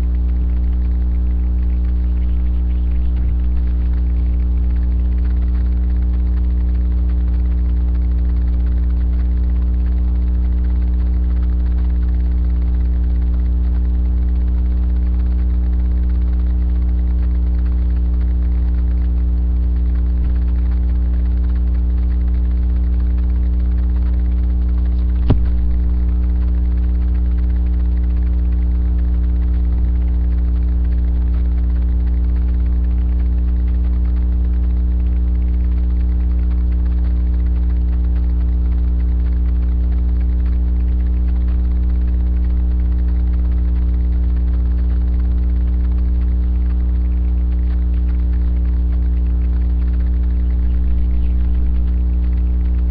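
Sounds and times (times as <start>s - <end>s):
electrical mains hum: 0.0s - 52.9s
sharp click: 25.0s - 26.0s.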